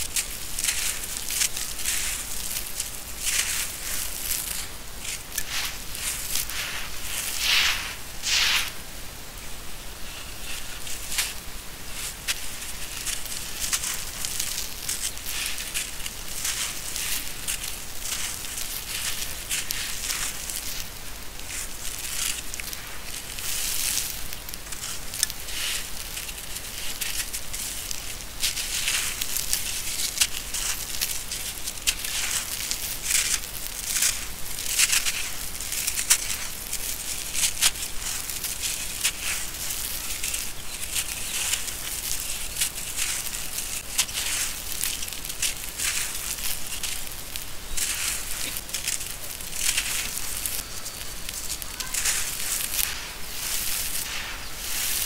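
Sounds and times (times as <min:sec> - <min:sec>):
cement lumps crunching in hands: 0:00.1 - 0:08.8, 0:10.2 - 0:55.0
grit trickling onto floor: 0:00.1 - 0:08.8, 0:10.4 - 0:55.0.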